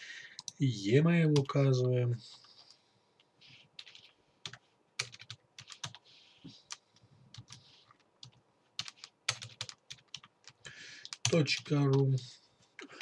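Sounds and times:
keyboard typing: 1.3s - 1.6s, 3.8s - 12.0s.

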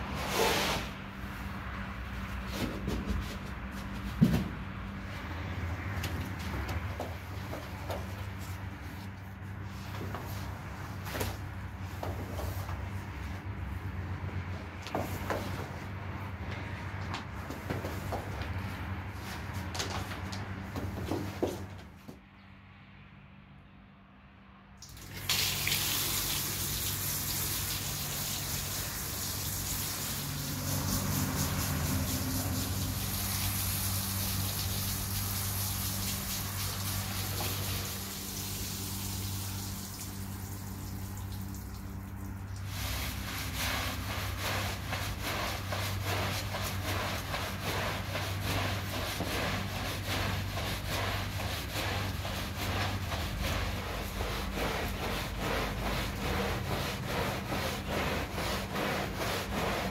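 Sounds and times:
stiff brush scrubbing rug: 0.0s - 22.0s, 25.4s - 59.9s
water spraying from hose nozzle: 24.8s - 54.3s.

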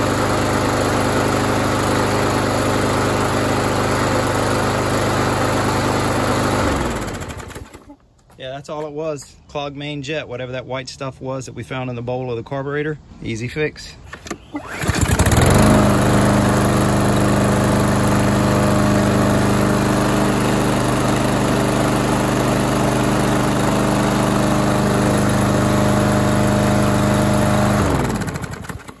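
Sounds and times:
lawn mower engine running: 0.0s - 8.0s, 14.1s - 29.0s.

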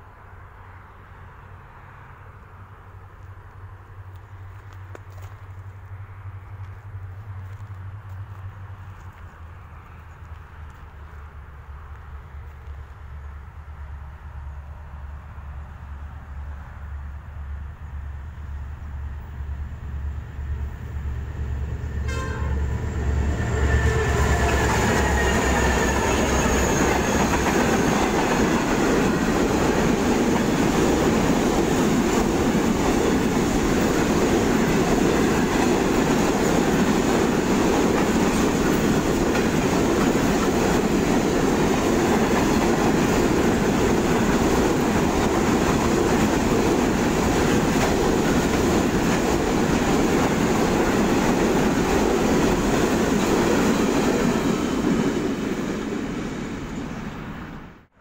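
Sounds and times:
diesel locomotive engine hum: 0.0s - 58.0s
wagons rumbling and clattering on rails: 18.7s - 57.6s.

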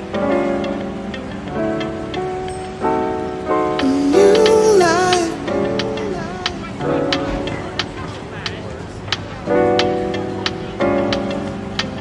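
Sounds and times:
held chords on an instrument: 0.0s - 8.4s.

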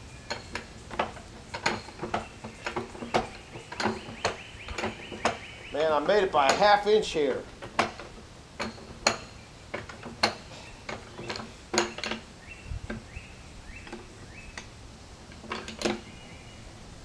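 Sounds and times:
metal clanks and clinks: 0.2s - 12.3s, 15.3s - 16.1s.

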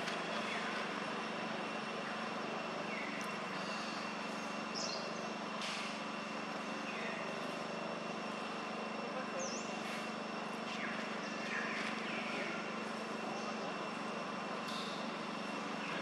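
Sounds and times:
steady low hum: 0.0s - 16.0s
birds chirping and whistling: 2.8s - 5.3s, 6.8s - 7.2s, 9.4s - 9.8s, 10.7s - 12.7s.

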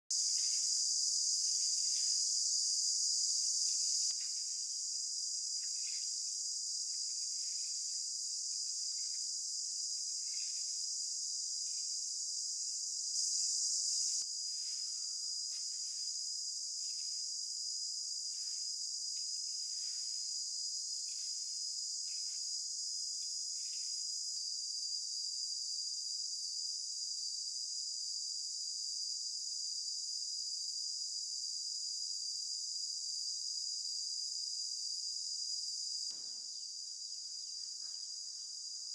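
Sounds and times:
insects chirping: 0.1s - 38.9s.

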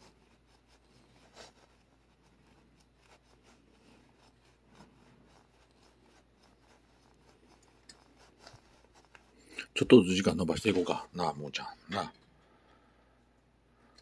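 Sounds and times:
leather glove rubbing cat fur: 0.0s - 11.6s.

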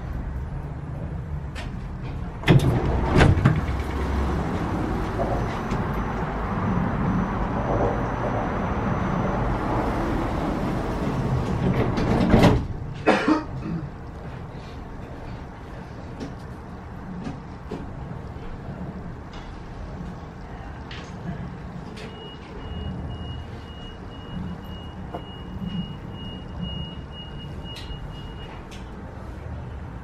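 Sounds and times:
train doors knocking: 9.6s - 12.8s.

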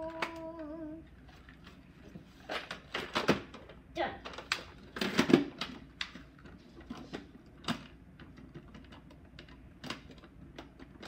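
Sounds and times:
plastic toys clicking and tapping: 2.7s - 11.0s.

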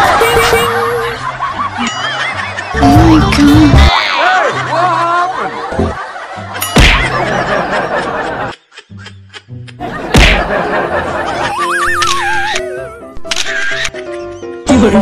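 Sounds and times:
laughter: 0.0s - 2.8s, 4.2s - 12.6s
background music: 0.0s - 15.0s.

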